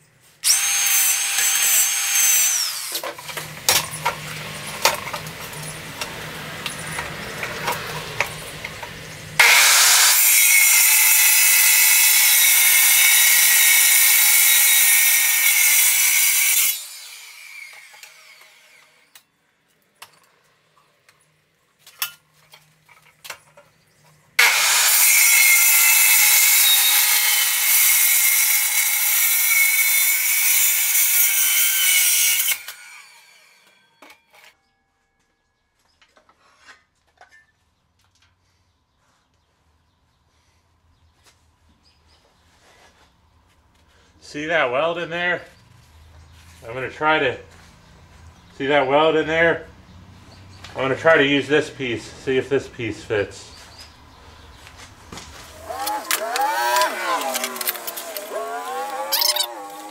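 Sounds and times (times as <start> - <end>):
circular saw cutting steel pipe: 0.4 - 3.5, 9.4 - 19.1, 24.4 - 34.6, 55.5 - 59.9.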